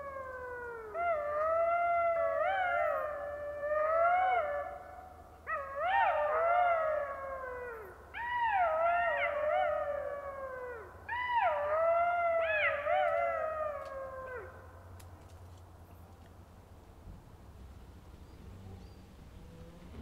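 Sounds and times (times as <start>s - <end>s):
jackals howling in chorus: 0.0s - 14.7s.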